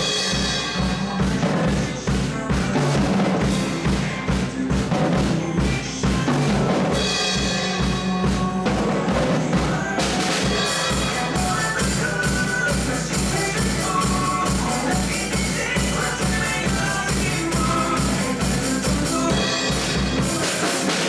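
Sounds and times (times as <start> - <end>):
drum kit playing a steady beat: 0.0 - 21.0
pop-rock backing track: 0.0 - 21.0.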